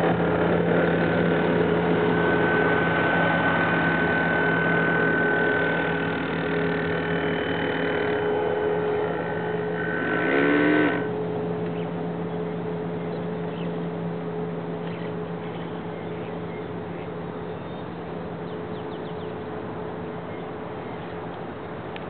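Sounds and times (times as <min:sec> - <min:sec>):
model boat motor humming: 0:00.0 - 0:22.0
faint bird chirps: 0:11.6 - 0:13.9, 0:14.8 - 0:19.5.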